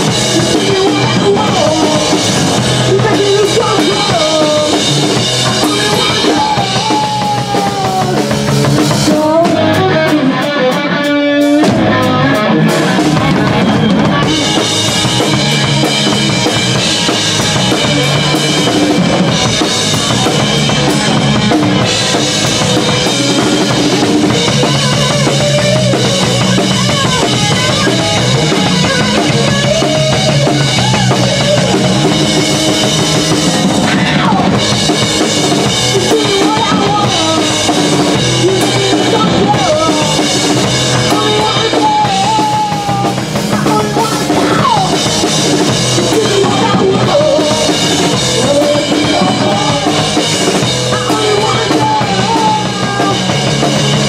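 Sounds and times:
electric guitar: 0:00.0 - 0:54.0
pounding drum kit: 0:00.0 - 0:54.0
punk rock band playing: 0:00.0 - 0:54.0.

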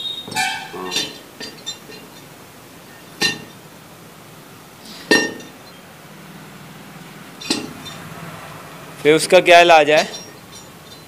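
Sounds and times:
metal rod clinking on pump: 0:00.3 - 0:02.3, 0:03.2 - 0:03.6, 0:07.4 - 0:08.0, 0:09.9 - 0:11.0.

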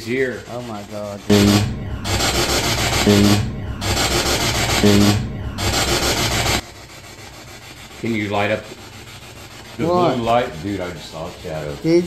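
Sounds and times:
buzzy pitched fragment: 0:01.2 - 0:06.6
radio static bursts: 0:01.2 - 0:06.6.

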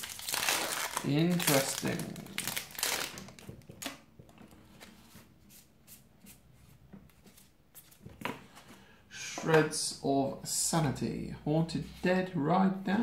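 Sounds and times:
foil wrapper crinkling: 0:00.0 - 0:03.8
trading cards being leafed through: 0:00.0 - 0:03.9.

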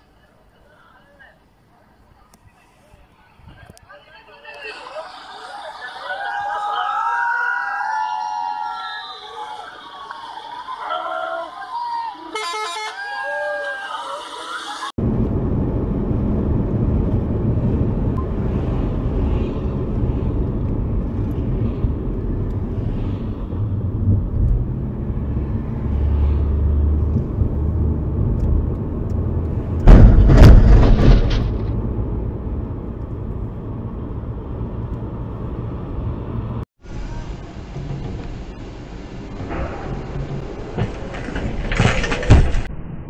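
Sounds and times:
car road and engine rumble: 0:14.9 - 0:43.0
loud rumbling and clattering burst: 0:27.0 - 0:33.9, 0:37.4 - 0:43.0.

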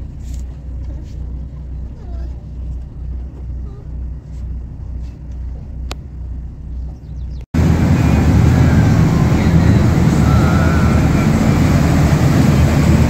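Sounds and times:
boat engine running: 0:00.0 - 0:13.0
churning wake: 0:00.0 - 0:13.0.

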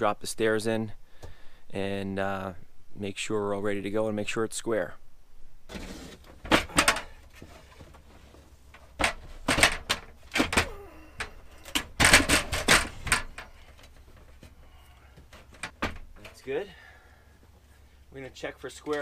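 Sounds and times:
metal ladder knocking and scraping: 0:05.7 - 0:14.6, 0:15.2 - 0:16.5.

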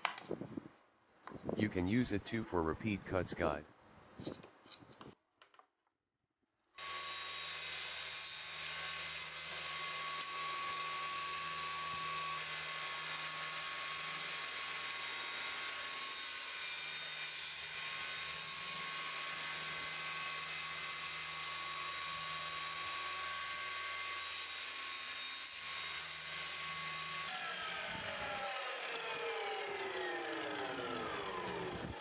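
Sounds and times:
table saw running: 0:06.8 - 0:32.0.

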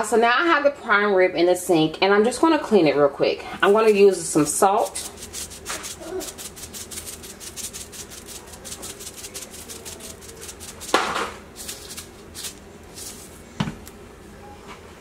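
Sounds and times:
salt shaker shaking: 0:03.6 - 0:13.4.

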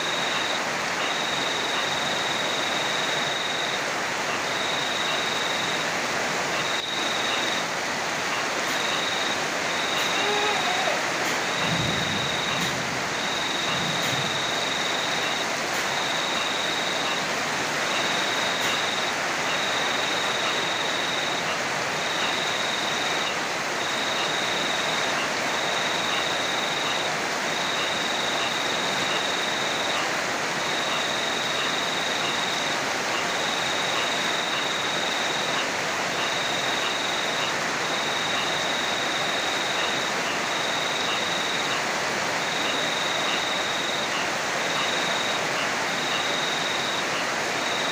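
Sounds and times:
heavy rain falling: 0:00.0 - 0:47.9
insect trilling: 0:08.3 - 0:15.4.

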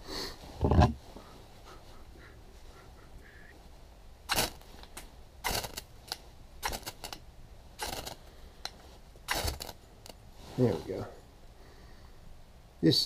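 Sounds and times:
knife scraping ferrocerium rod: 0:09.3 - 0:10.2.

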